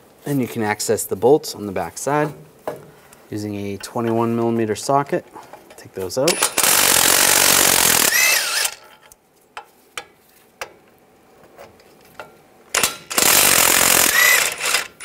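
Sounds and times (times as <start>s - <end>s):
impact wrench loosening bolts: 6.3s - 9.0s, 12.8s - 15.0s.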